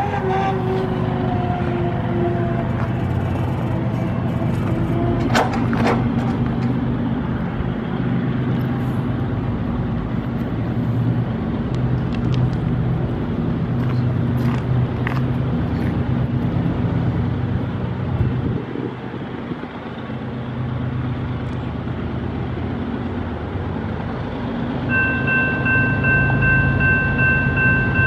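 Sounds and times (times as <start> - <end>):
engine running steadily: 0.0 - 28.0
steady higher tone: 24.9 - 28.0.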